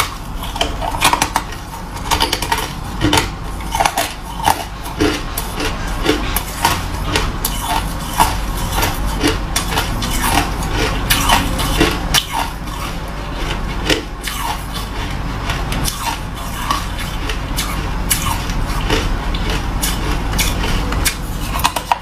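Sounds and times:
ice being chewed: 0.0 - 22.0.

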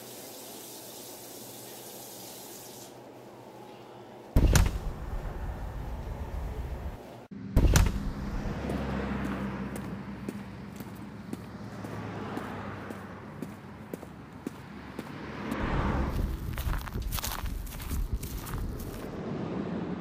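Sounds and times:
tap water running: 0.0 - 3.0
low outdoor rumble: 3.2 - 11.9, 12.9 - 20.0
heavy door thuds: 4.4 - 5.0, 7.6 - 8.2
light footsteps: 8.0 - 19.2.

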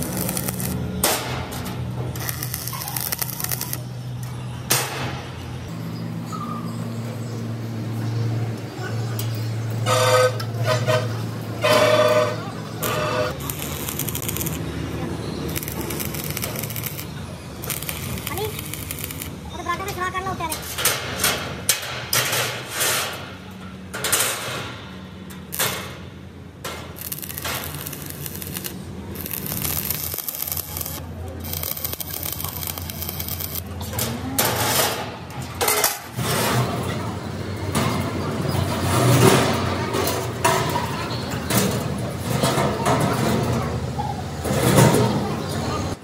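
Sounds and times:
arc welder crackling and hissing: 0.0 - 4.9, 11.7 - 20.2, 25.5 - 26.0, 26.6 - 34.0
workshop noise: 0.0 - 46.0.

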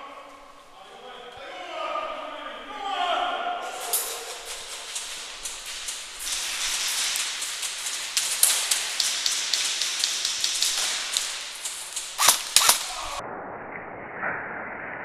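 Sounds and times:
steady hiss: 0.0 - 13.2
loud snaps: 3.8 - 13.2
airsoft gun clicks and bb impacts: 8.2 - 13.2.

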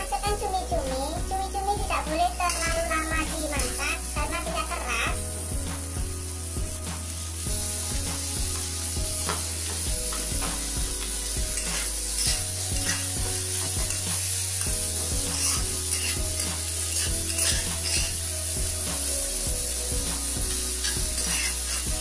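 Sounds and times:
squid sizzling in a wok: 0.0 - 22.0
spatula scraping a pan: 6.9 - 19.1, 20.1 - 22.0.

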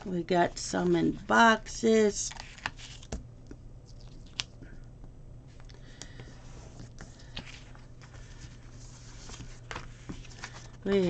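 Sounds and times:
low steady hum: 0.0 - 11.0
paper rustling: 2.2 - 3.2, 6.6 - 11.0.

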